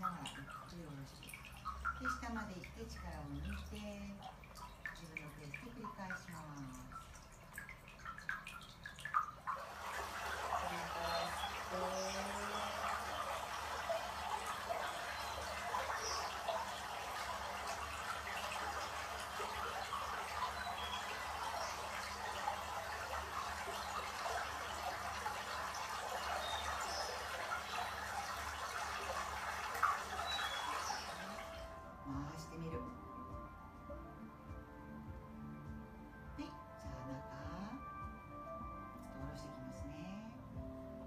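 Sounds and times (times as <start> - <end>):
trickling running water: 0.0 - 32.7.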